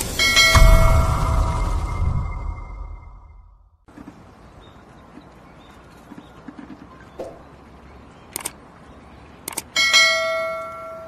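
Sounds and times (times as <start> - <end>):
bright bell ding: 0.2 - 3.1
sharp clicks: 8.3 - 8.6, 9.4 - 9.7.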